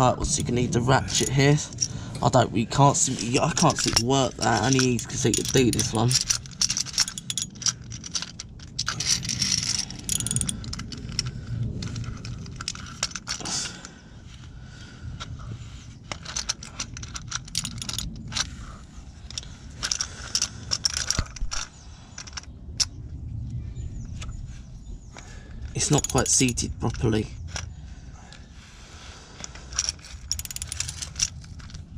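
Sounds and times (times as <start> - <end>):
oil filter wrench clinking and scraping: 0.0 - 13.9, 16.0 - 22.9, 25.7 - 27.8, 29.4 - 31.9
low handling rumble: 0.0 - 31.9.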